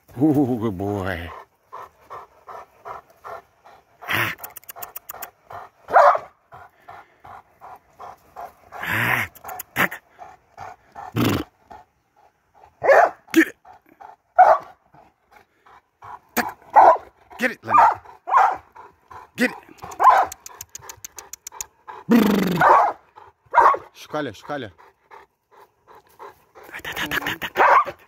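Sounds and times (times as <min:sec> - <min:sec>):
dog panting hard: 0:00.8 - 0:28.0
dog barking: 0:05.9 - 0:06.4, 0:12.8 - 0:13.2, 0:14.4 - 0:14.8, 0:16.4 - 0:17.1, 0:17.7 - 0:18.7, 0:19.9 - 0:20.4, 0:22.6 - 0:23.9, 0:27.5 - 0:28.0.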